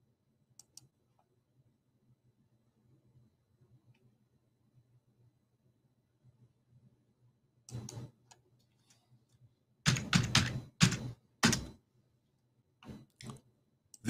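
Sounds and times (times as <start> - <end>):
keyboard typing: 9.9 - 11.8.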